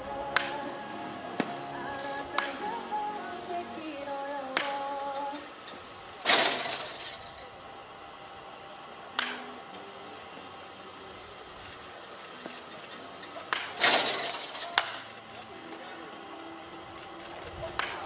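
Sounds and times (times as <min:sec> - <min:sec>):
baseball bat cracking ball: 0:00.3 - 0:00.7, 0:01.3 - 0:02.9, 0:04.5 - 0:05.5, 0:09.1 - 0:09.6, 0:13.4 - 0:15.0, 0:17.7 - 0:18.0.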